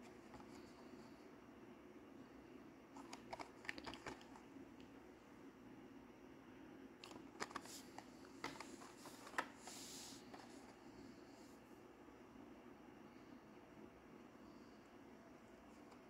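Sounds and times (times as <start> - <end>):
cardboard and plastic rustling: 7.0 - 10.8
soft brushing: 7.6 - 10.8.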